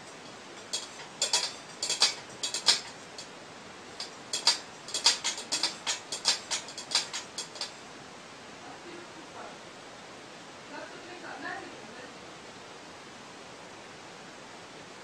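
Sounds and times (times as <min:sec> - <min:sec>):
cat claws scraping steel bowl: 0:00.0 - 0:03.3, 0:03.9 - 0:07.8.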